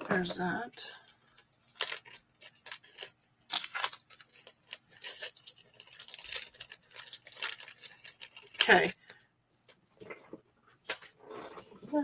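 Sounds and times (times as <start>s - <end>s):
small items clicking and rustling: 0.0s - 9.3s.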